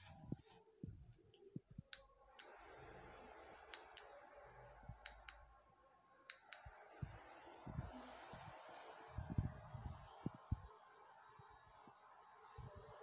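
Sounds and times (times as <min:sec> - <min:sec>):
small electric fans whirring: 0:02.2 - 0:05.5, 0:06.2 - 0:13.0.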